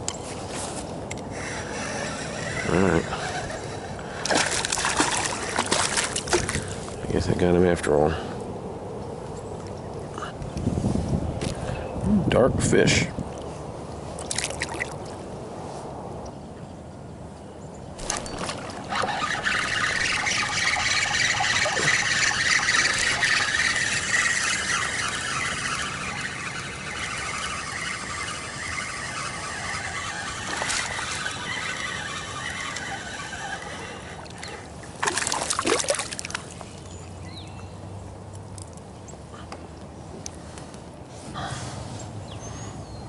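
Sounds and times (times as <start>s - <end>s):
spinning reel whirring: 1.2s - 6.5s, 18.0s - 35.3s
fish splashing at the surface: 4.2s - 6.6s, 18.0s - 36.4s.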